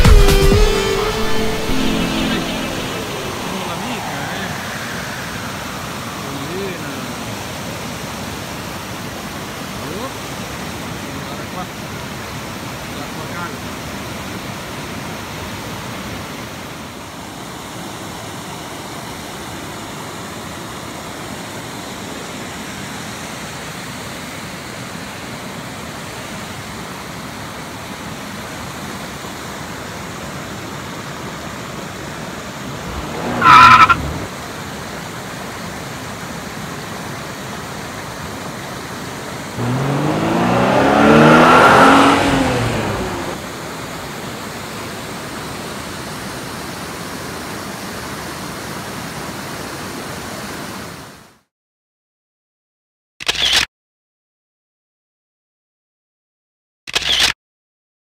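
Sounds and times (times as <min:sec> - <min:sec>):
mountain torrent rushing: 0:00.0 - 0:18.1, 0:31.6 - 0:34.7, 0:38.0 - 0:46.0
loud wavering pitched sound: 0:00.8 - 0:07.4, 0:32.7 - 0:34.3.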